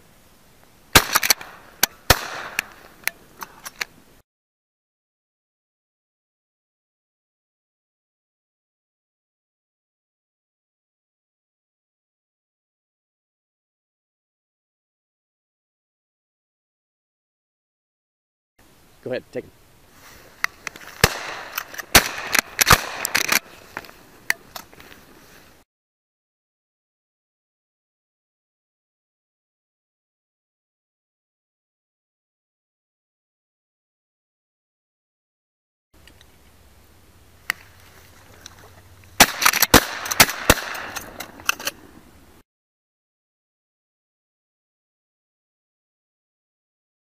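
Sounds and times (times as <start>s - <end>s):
loud shotgun shots: 0.9s - 2.8s, 21.0s - 23.5s, 39.2s - 41.2s
distant sharp cracks: 0.9s - 3.9s, 20.7s - 24.8s, 39.2s - 41.9s.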